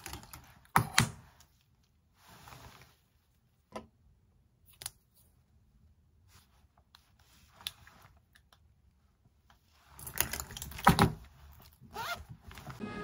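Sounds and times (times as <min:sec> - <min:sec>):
zip pouch rustling and clicking: 0:10.0 - 0:12.8.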